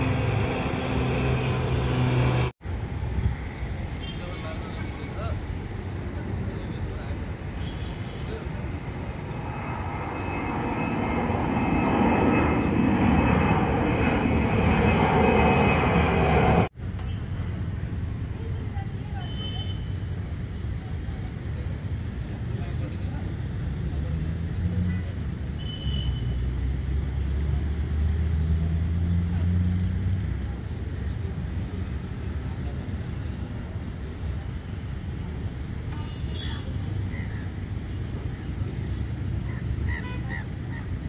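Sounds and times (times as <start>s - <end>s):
high whine: 0.0s - 2.5s, 8.9s - 16.7s
airplane engines roaring: 0.0s - 41.0s.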